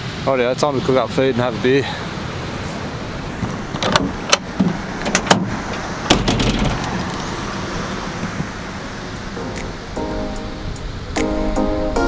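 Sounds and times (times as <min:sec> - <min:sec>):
steady background hiss: 0:00.0 - 0:12.0
canopy door latch clicks: 0:03.8 - 0:07.0.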